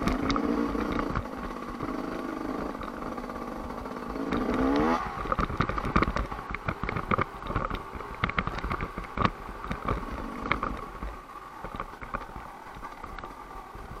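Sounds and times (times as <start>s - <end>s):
bike knocks and rattles: 0.0s - 14.0s
dirt bike engine running: 0.0s - 14.0s.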